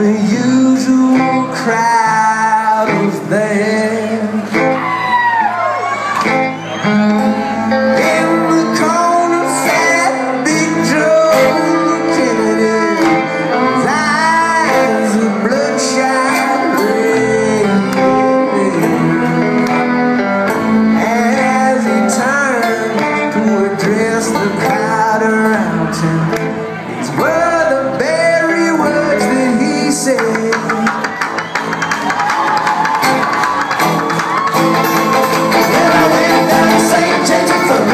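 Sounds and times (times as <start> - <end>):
person singing: 0.0 - 4.9, 7.2 - 31.2, 34.3 - 37.9
acoustic guitar: 0.0 - 37.9
upright bass: 33.2 - 37.9
banjo: 34.0 - 37.9.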